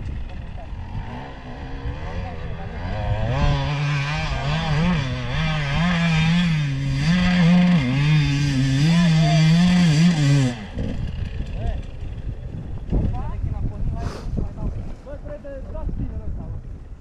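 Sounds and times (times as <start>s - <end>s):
motorcycle engine revving: 0.0s - 13.3s.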